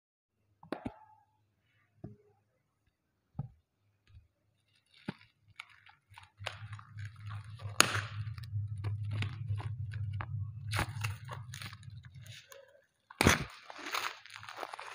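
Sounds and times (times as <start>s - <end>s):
plastic wrap crinkling: 4.6s - 8.4s, 13.2s - 14.9s
low hum: 6.4s - 14.9s.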